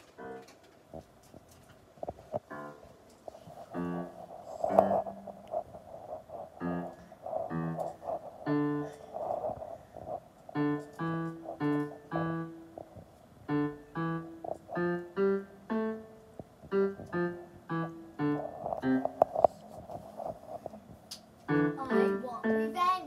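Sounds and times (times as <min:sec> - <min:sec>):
electronic keyboard single notes: 0:13.5 - 0:19.2.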